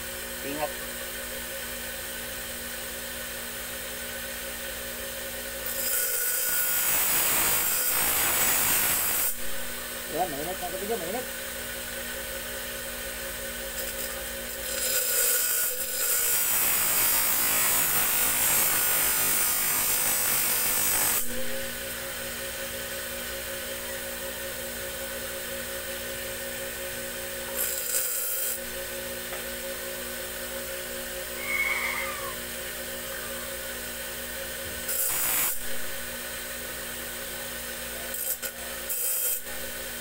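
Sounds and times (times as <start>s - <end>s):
blade grinding on wheel: 13.8s - 16.6s, 27.6s - 28.6s.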